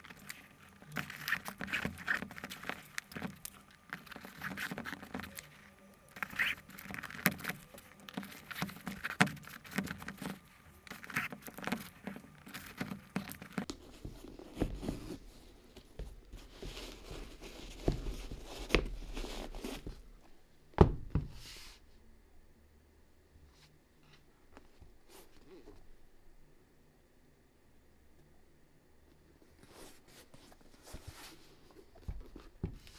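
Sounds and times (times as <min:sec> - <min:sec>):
scratchy rustling and taps: 0:00.0 - 0:20.0.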